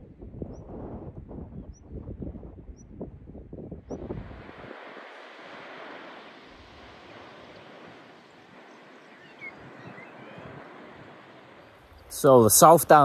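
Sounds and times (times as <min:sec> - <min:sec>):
wind: 0:00.0 - 0:13.0
distant sea surf: 0:03.8 - 0:13.0
faint high chirps: 0:08.5 - 0:11.3.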